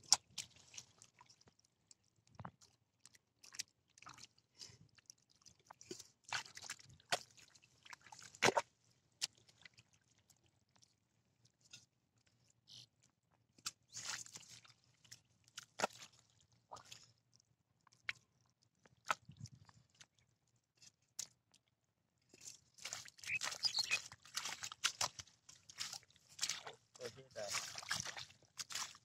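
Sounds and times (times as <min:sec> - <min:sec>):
hand squelching through wet mud: 0:00.1 - 0:01.6, 0:05.0 - 0:09.9, 0:13.6 - 0:17.1, 0:22.3 - 0:29.0.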